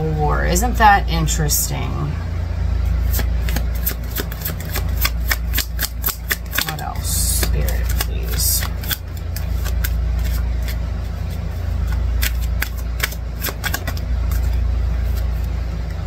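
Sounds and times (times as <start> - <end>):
steady low hum: 0.0 - 16.0
cards clicking and slapping: 3.1 - 15.5.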